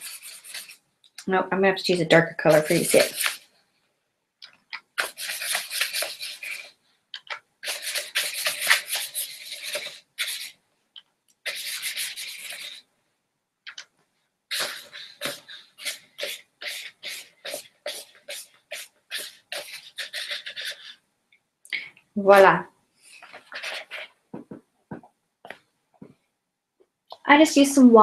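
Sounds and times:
paintbrush scrubbing on paper: 0:00.0 - 0:00.8, 0:02.4 - 0:03.5, 0:04.8 - 0:10.6, 0:11.4 - 0:12.8, 0:14.5 - 0:21.0, 0:23.1 - 0:24.2.

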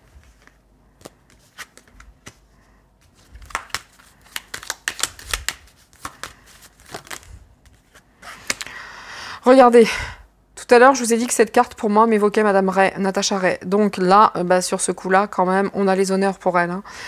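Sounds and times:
cards being shuffled: 0:00.0 - 0:08.7.

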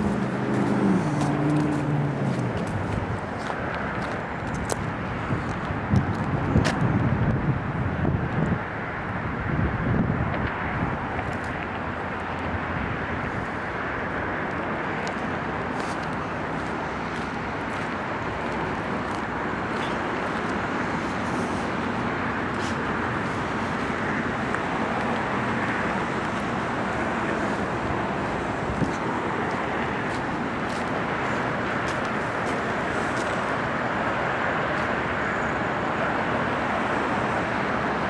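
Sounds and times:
road traffic passing cars: 0:00.0 - 0:38.0.

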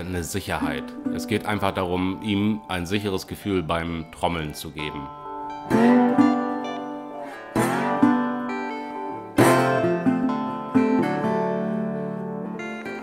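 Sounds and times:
acoustic guitar chords strummed: 0:05.0 - 0:13.0.

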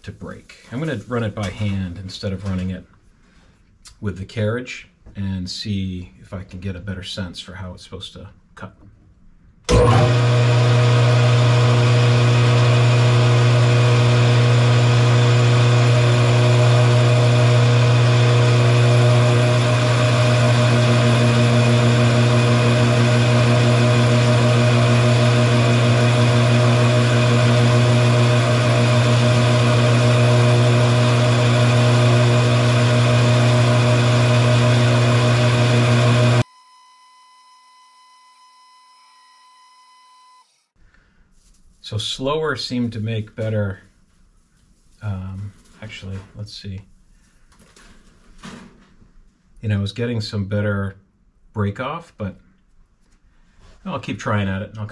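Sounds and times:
metal lathe running: 0:09.7 - 0:36.4.

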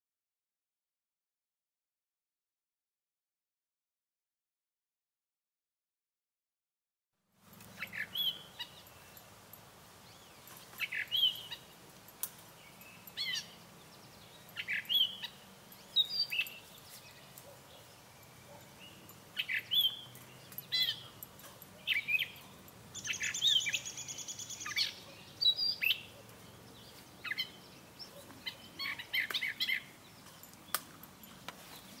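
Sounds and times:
catbird singing squeaky phrases: 0:07.8 - 0:08.9, 0:14.6 - 0:16.7, 0:20.7 - 0:21.1, 0:23.0 - 0:26.1, 0:28.4 - 0:30.0.

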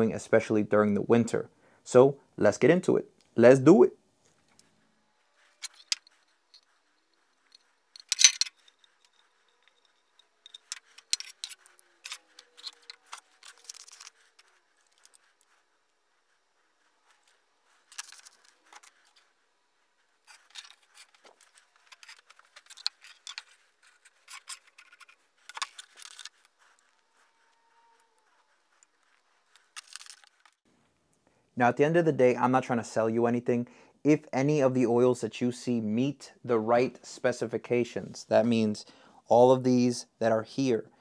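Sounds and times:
marker scratching on plastic: 0:04.3 - 0:30.6.

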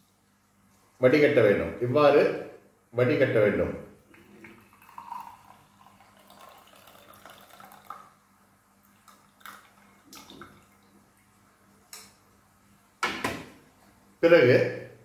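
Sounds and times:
liquid trickling into glass: 0:04.1 - 0:08.2, 0:08.8 - 0:11.0.

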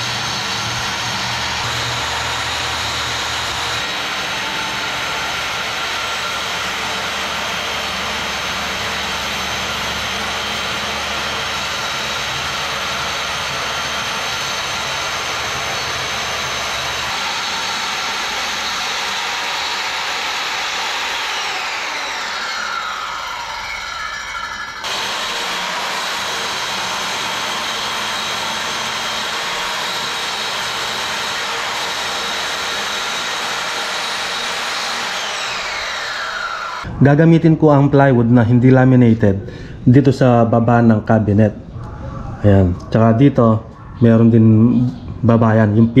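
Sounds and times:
circular saw cutting wood: 0:00.0 - 0:36.9.

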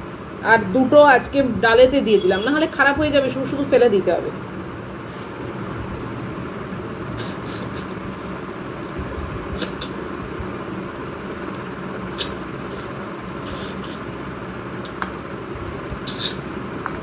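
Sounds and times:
steady background noise: 0:00.0 - 0:17.0
mouth clicks while chewing: 0:09.6 - 0:10.0, 0:11.6 - 0:12.8, 0:14.8 - 0:15.1.

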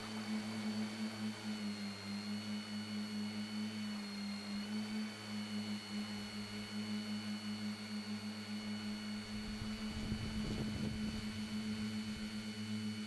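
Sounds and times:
drone motors humming with whine: 0:00.0 - 0:13.0
low buffeting rumble: 0:09.2 - 0:12.4.

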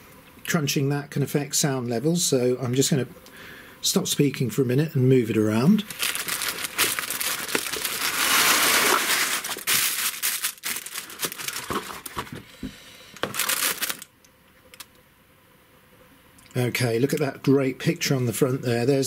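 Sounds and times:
cellophane crinkling: 0:05.8 - 0:12.5, 0:13.1 - 0:14.1.

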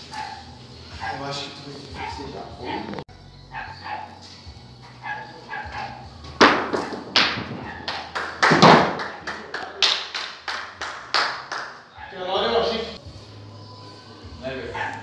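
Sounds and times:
balls knocking together: 0:06.4 - 0:09.3.

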